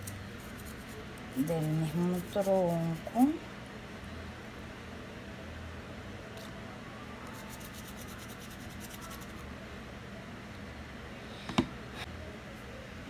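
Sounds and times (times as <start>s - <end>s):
quick scratching: 7.4s - 9.4s.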